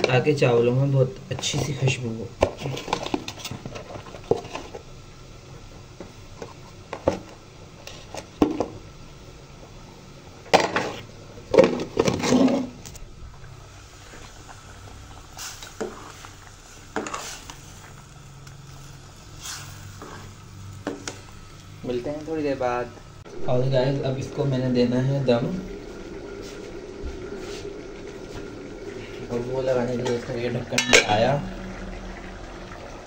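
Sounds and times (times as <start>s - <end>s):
kitchen utensils clinking: 30.8s - 31.3s.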